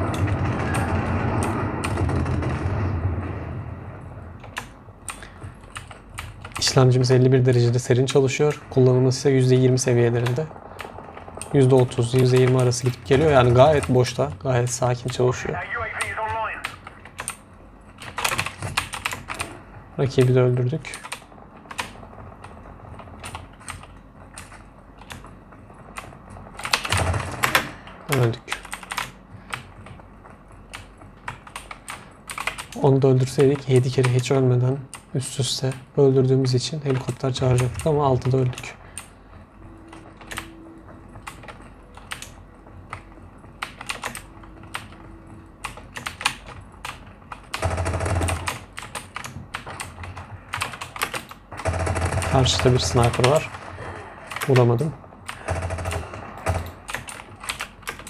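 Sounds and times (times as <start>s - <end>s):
deep rumbling noise: 0.0s - 13.9s, 19.6s - 28.2s
keyboard keys clicking: 4.4s - 7.7s, 16.6s - 19.5s, 30.7s - 32.8s, 41.2s - 45.0s, 45.6s - 47.6s, 48.3s - 51.4s, 54.3s - 58.0s.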